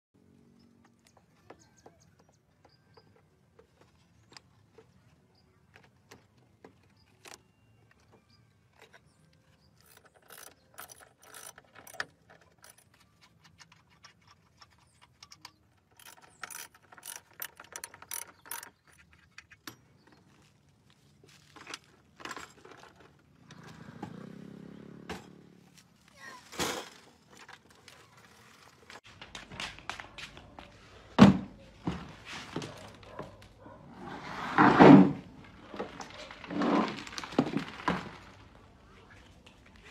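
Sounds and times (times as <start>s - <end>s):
hand tools clinking on metal: 8.0s - 20.4s.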